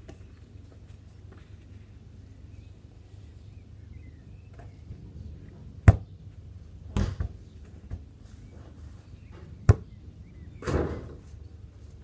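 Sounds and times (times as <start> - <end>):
football kicked: 5.8 - 6.1
ball hitting net: 6.9 - 8.0.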